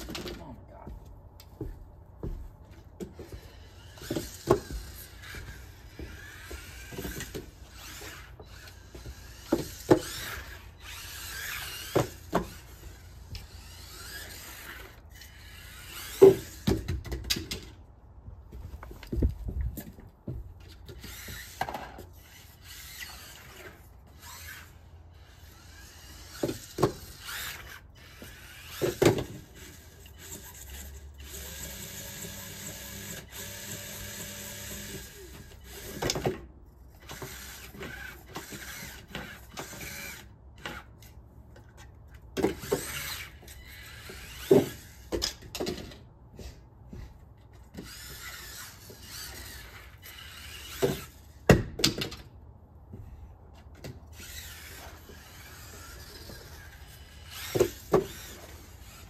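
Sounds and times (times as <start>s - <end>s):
small electric motor whining: 3.2s - 17.0s, 20.9s - 36.3s, 36.9s - 41.2s, 42.4s - 45.2s, 47.7s - 51.5s, 54.0s - 59.0s.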